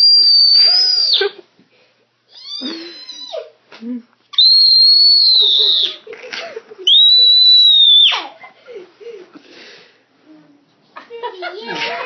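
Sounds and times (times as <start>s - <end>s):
toddler squealing: 0.0s - 1.4s, 4.5s - 6.0s.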